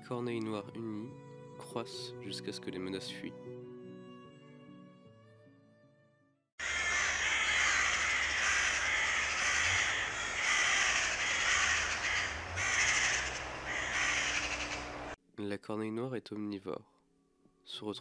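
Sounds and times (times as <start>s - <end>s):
crows cawing: 6.6s - 15.2s.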